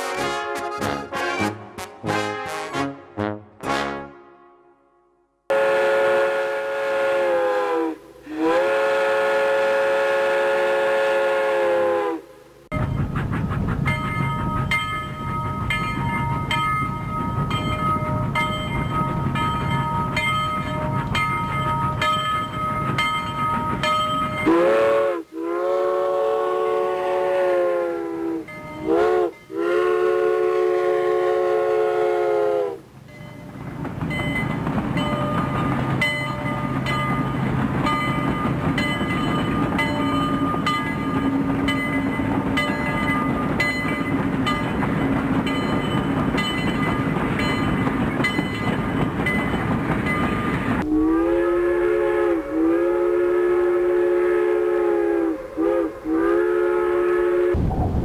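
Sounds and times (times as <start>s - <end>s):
steam locomotive whistle: 0.0s - 4.8s, 5.5s - 12.6s, 23.8s - 32.9s, 50.4s - 57.6s
steam train rumbling: 5.5s - 58.0s.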